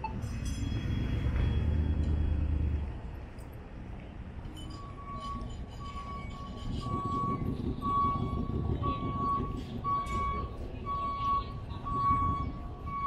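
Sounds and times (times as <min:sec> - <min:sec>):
low outdoor rumble: 0:00.0 - 0:13.0
vehicle backup alarm beeping: 0:04.6 - 0:13.0
crowd chatter: 0:08.4 - 0:13.0.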